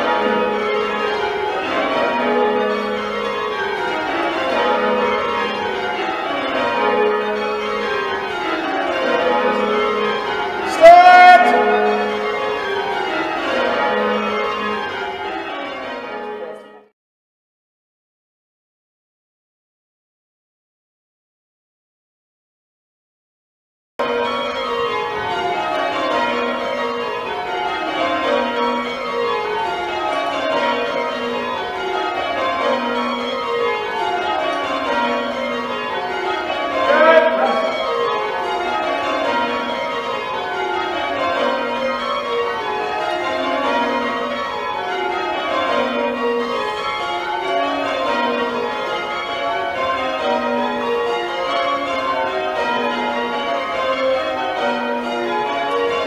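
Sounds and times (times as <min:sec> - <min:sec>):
church bells change ringing: 0:00.0 - 0:16.9, 0:24.0 - 0:56.0
short loud call: 0:10.7 - 0:11.8.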